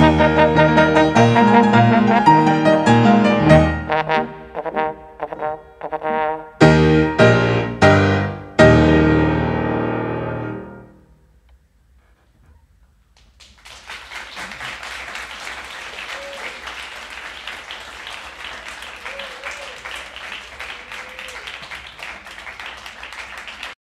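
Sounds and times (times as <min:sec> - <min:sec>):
audience applauding: 0:13.2 - 0:23.8.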